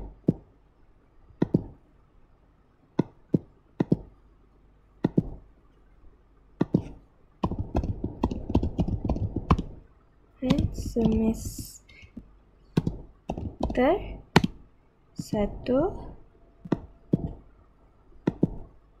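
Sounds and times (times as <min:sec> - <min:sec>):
computer keyboard typing: 0:06.6 - 0:09.8, 0:10.4 - 0:12.1, 0:12.8 - 0:14.6.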